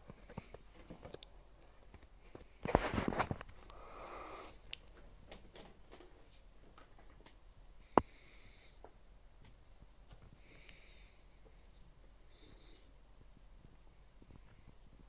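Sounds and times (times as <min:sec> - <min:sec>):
soft hisses: 0:02.2 - 0:05.2.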